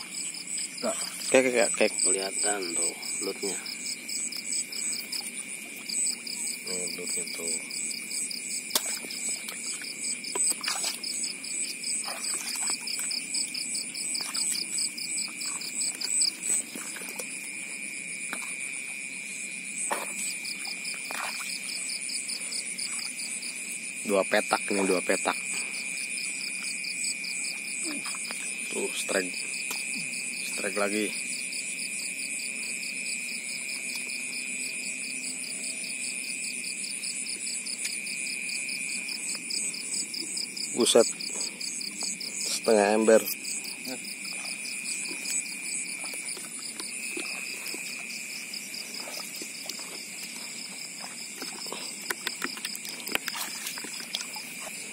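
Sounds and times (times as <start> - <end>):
crickets trilling: 0.0 - 54.9
insects and frogs chorus: 0.0 - 54.9
water splashes: 8.7 - 11.3, 11.9 - 13.4, 14.0 - 17.4, 19.9 - 22.0, 44.3 - 54.9.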